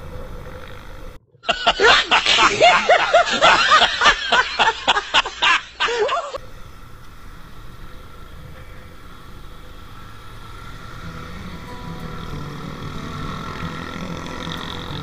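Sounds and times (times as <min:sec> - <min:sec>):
rapid high-pitched laughter: 0:01.4 - 0:06.4
motorcycle riding on road: 0:06.4 - 0:15.0.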